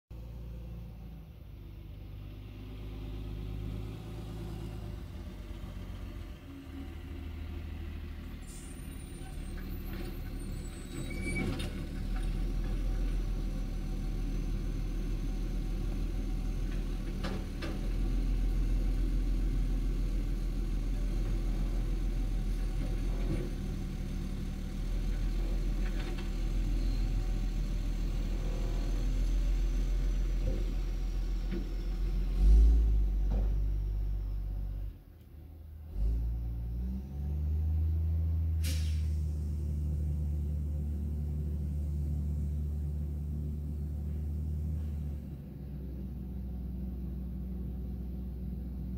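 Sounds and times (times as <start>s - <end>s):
garbage truck diesel engine running: 38.0s - 48.9s.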